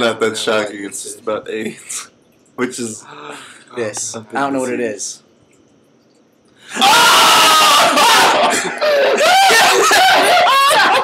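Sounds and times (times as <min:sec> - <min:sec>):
young men shrieking and screaming: 0:06.7 - 0:11.0
young men laughing: 0:06.8 - 0:11.0.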